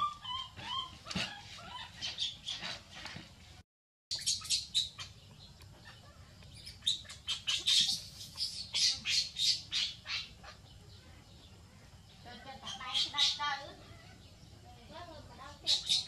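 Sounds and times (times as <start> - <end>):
baby monkey crying shrieks: 0.0 - 2.4, 5.9 - 10.6, 12.6 - 14.2, 15.6 - 16.0.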